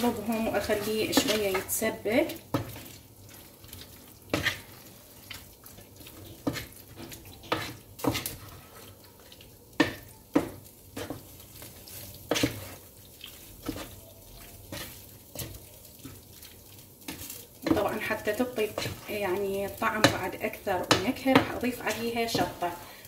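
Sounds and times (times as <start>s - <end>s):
wooden spoon scraping a pan: 0.0s - 16.2s, 17.0s - 23.0s.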